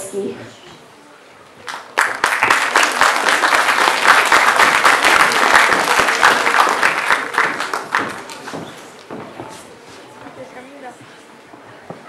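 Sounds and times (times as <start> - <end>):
audience applauding: 1.6 - 8.7.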